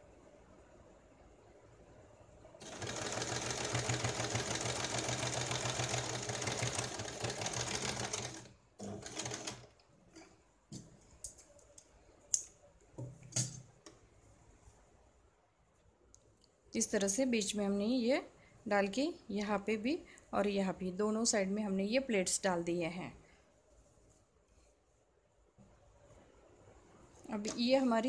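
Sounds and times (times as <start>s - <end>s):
electric sewing machine stitching: 2.6s - 9.7s.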